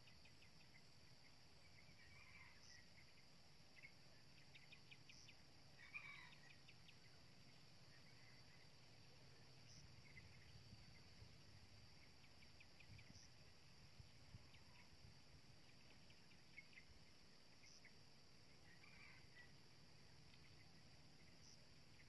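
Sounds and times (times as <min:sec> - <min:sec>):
faint ticks and chirps: 0:00.0 - 0:22.0
insects droning: 0:00.0 - 0:22.0.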